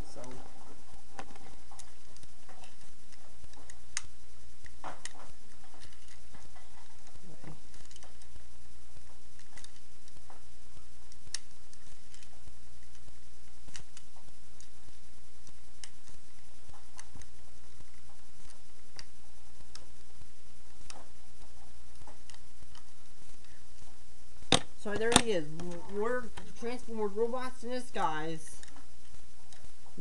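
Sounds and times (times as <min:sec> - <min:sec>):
steady low hum: 0:00.0 - 0:30.0
small plastic clicks and snaps: 0:09.3 - 0:14.8, 0:20.8 - 0:26.5.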